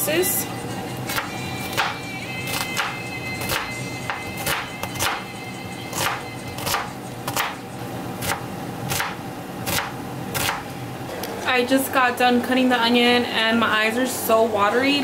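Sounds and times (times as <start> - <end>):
quiet background music: 0.0 - 9.2
knife chopping onion: 1.1 - 5.3, 5.9 - 10.7.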